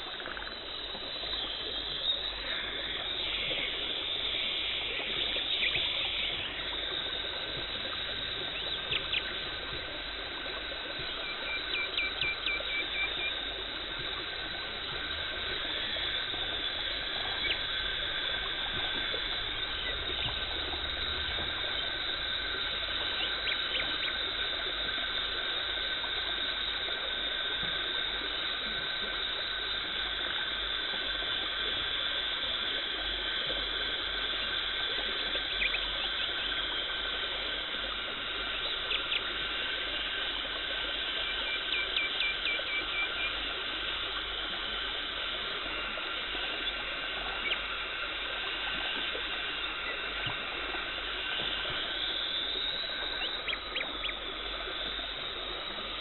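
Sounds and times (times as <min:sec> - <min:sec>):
high whine: 0:00.0 - 0:26.8
dental suction and water hissing: 0:12.0 - 0:38.5.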